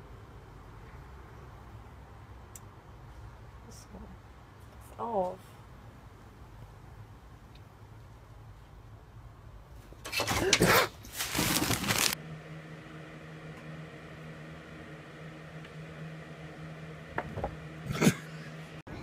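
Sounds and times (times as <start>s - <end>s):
loud rustling and scuffling: 10.1s - 12.2s
steady low hum: 11.8s - 19.0s.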